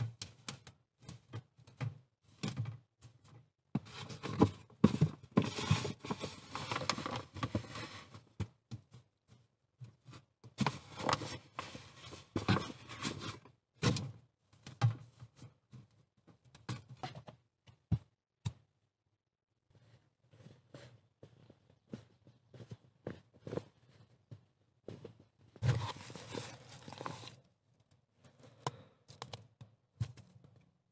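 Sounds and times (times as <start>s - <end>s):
wet clay scraping and rustling: 25.6s - 27.4s.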